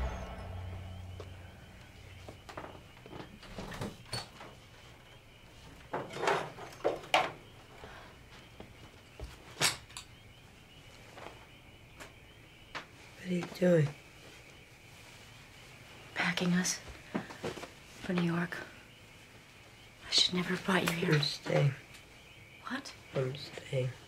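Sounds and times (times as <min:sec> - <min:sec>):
sharp knock: 0:00.0 - 0:02.2.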